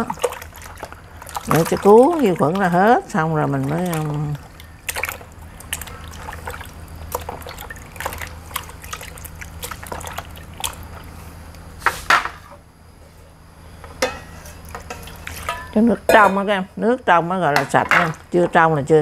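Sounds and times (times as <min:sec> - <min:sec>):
water splashing in a basin: 0:00.0 - 0:11.2, 0:14.6 - 0:15.8.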